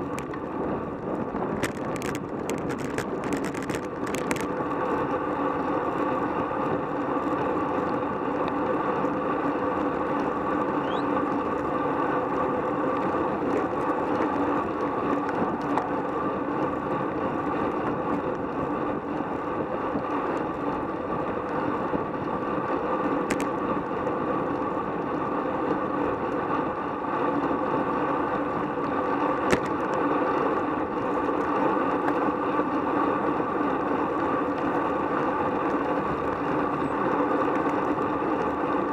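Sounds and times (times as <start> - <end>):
wind on microphone: 0.0 - 4.8, 12.4 - 25.1
road noise: 0.0 - 38.9.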